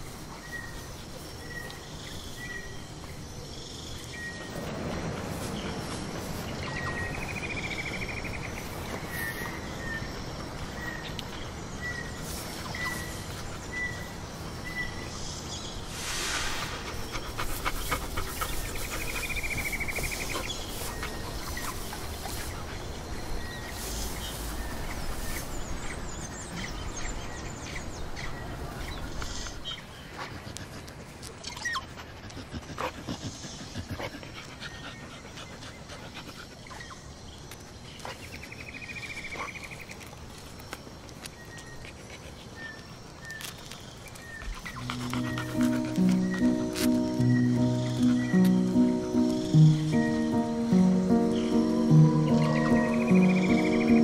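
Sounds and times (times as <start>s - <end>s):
dogs panting and sniffing: 0.0s - 54.0s
high curving chirp: 44.6s - 54.0s
music: 44.7s - 54.0s.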